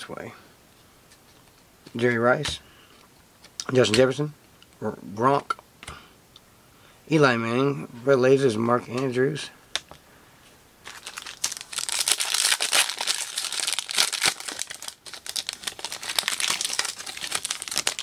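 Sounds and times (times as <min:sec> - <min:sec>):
foil wrapper tearing and crinkling: 0:10.9 - 0:18.0.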